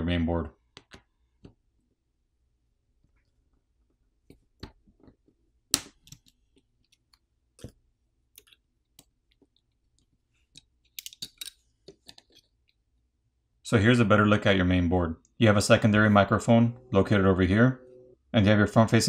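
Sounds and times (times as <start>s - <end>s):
clicks and taps of small parts: 0.7s - 1.6s, 4.3s - 12.8s.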